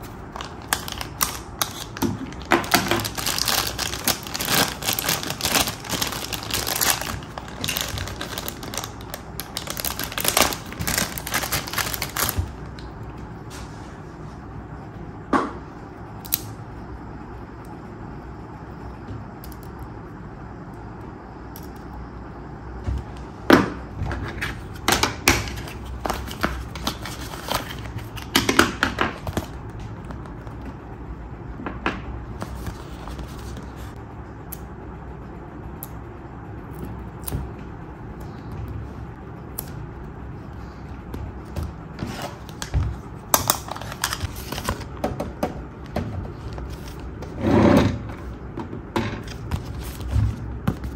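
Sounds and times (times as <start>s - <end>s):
paper sticker sheet rustling: 42.0s - 45.0s, 46.2s - 47.3s, 49.2s - 50.9s.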